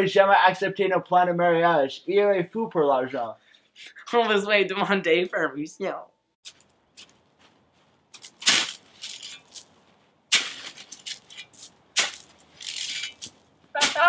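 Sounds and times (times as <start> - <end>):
shovel digging into soil: 8.1 - 14.0.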